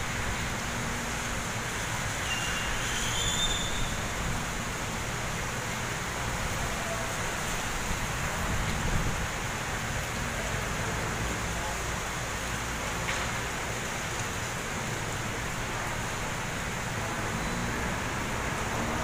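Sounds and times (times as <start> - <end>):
heavy rain hissing: 0.0 - 19.0.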